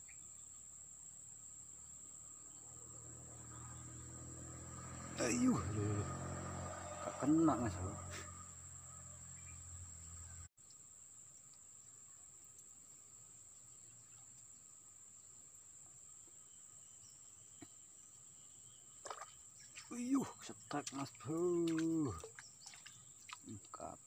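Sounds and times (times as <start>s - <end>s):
high-pitched insect drone: 1.5s - 10.4s.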